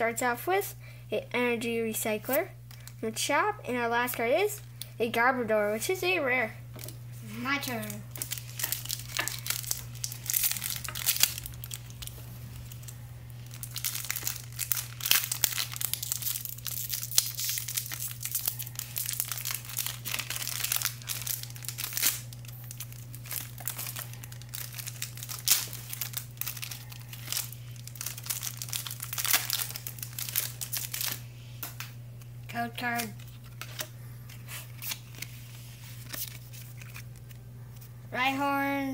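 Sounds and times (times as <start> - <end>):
foil wrappers crinkling and tearing: 6.8 - 31.8, 32.8 - 37.4.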